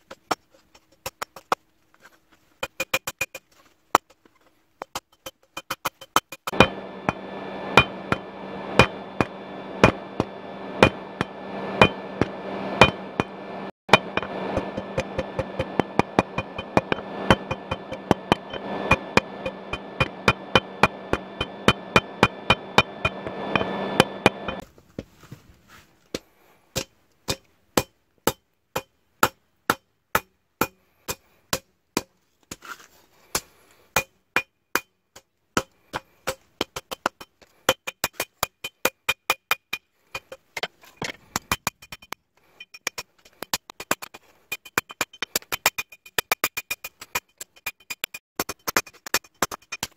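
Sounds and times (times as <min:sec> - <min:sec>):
steady hum: 0:05.3 - 0:24.6
hammer striking metal on anvil: 0:05.6 - 0:24.6.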